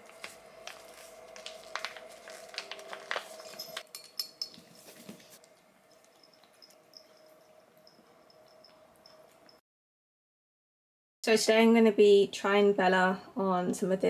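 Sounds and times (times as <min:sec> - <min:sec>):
plastic pouch crinkling: 0:00.0 - 0:03.8
faint steady hum: 0:00.0 - 0:09.6.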